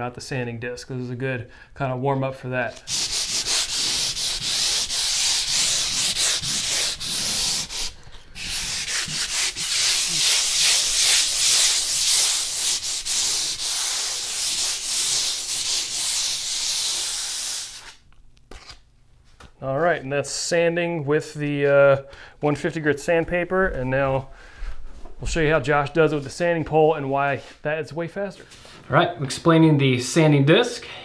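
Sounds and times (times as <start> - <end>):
sandpaper rubbing on ceiling: 2.8 - 18.0.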